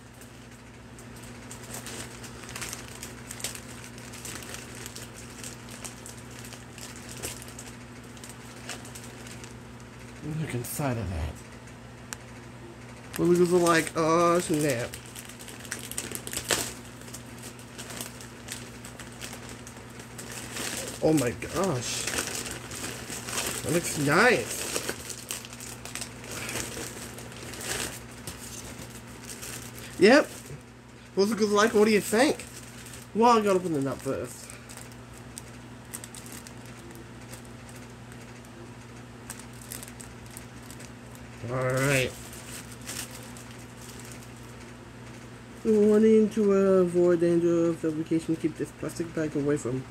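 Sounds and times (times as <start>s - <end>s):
plastic bag crinkling: 0.0s - 10.0s, 13.2s - 45.7s
steady low hum: 0.0s - 49.9s
plastic bag ripping: 1.0s - 9.6s, 13.2s - 30.6s, 31.2s - 38.3s, 39.2s - 44.6s.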